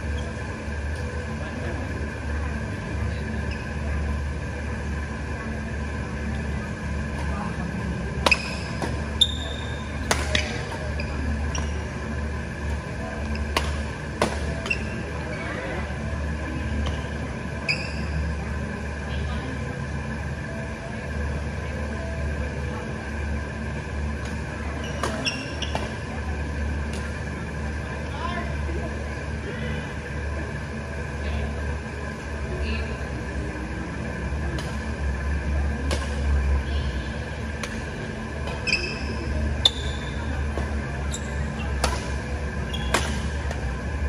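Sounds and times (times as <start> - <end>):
low hum of sports hall: 0.0 - 44.0
shoe squeak on floor: 8.3 - 11.8, 14.6 - 15.0, 17.7 - 18.2, 24.8 - 25.9, 38.5 - 40.2, 42.7 - 43.1.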